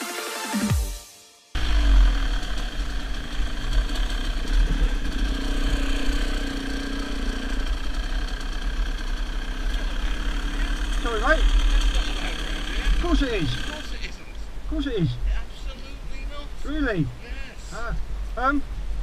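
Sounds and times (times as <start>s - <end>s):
dirt bike engine running: 1.6s - 14.1s.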